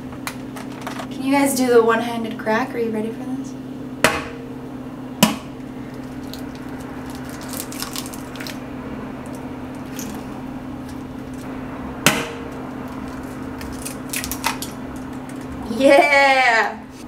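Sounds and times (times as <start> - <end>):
steady low hum: 0.0 - 17.0
egg cracking: 5.2 - 15.7.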